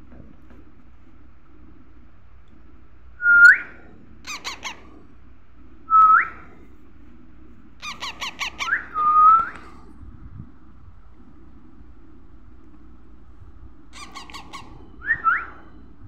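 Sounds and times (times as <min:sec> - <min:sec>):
parakeet chirps: 0:04.2 - 0:04.8, 0:07.8 - 0:09.0, 0:14.0 - 0:15.4
parakeet squawking: 0:04.2 - 0:04.8, 0:07.8 - 0:09.0, 0:14.0 - 0:14.8.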